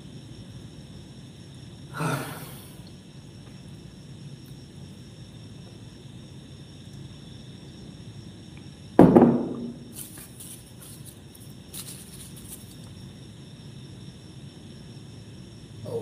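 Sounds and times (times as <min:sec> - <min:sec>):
loud thump: 0:09.0 - 0:09.9.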